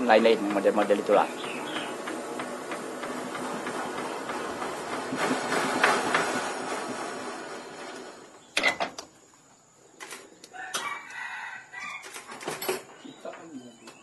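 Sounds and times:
rooster crowing: 10.5s - 12.2s.

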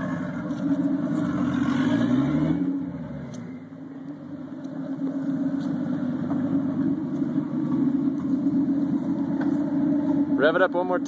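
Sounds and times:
car engine revving and idling: 0.0s - 11.0s.

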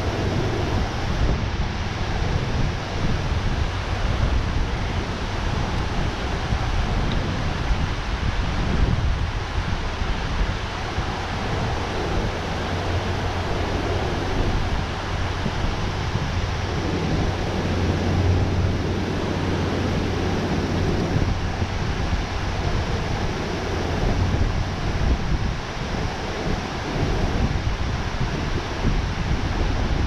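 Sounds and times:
water rushing at spillway: 0.0s - 30.0s
wind rumbling on microphone: 0.0s - 30.0s.

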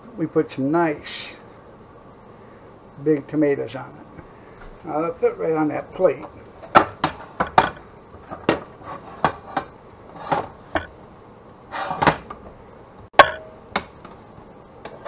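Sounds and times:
kitchen utensils knocking and clattering: 6.6s - 10.9s, 11.8s - 12.3s.

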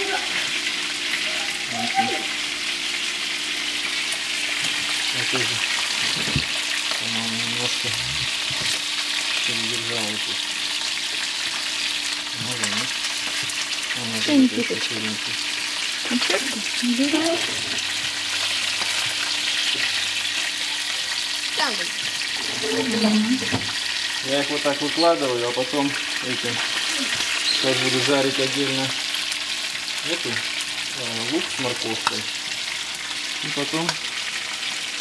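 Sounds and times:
fish sizzling in oil: 0.0s - 35.0s.

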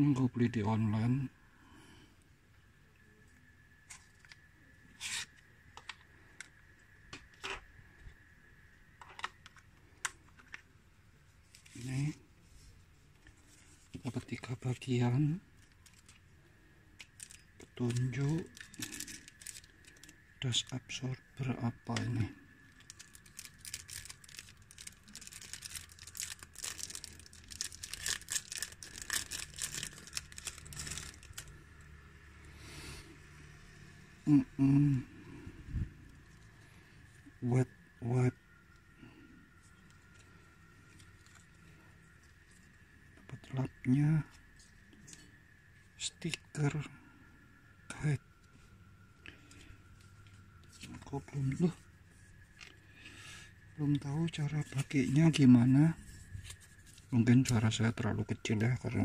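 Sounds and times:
plastic packet crinkling: 15.6s - 16.3s, 17.0s - 20.7s, 21.9s - 31.6s
faint high-pitched tone: 33.4s - 59.0s.

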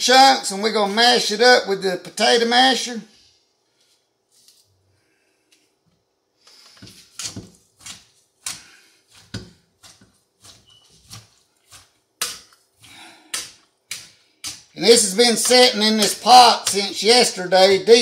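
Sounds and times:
potato masher mashing fruit: 6.6s - 18.0s.

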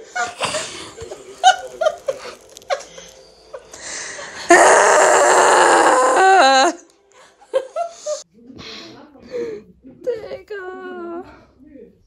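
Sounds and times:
woman giggling: 0.0s - 3.7s.

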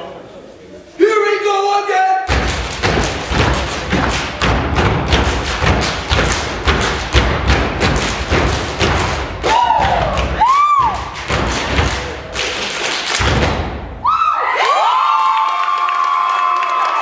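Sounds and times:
rhythmic stomps and slaps: 2.3s - 14.1s.

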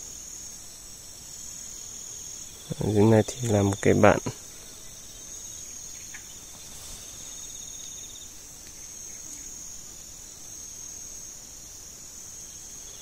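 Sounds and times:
high-pitched insect buzz: 0.0s - 13.0s
low pulsing insect trill: 0.0s - 13.0s.

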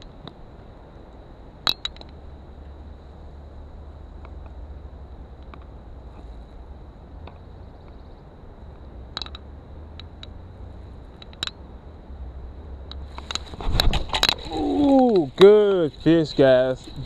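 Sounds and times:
wind rumble on microphone: 0.0s - 17.0s
handling noise: 12.9s - 17.0s.

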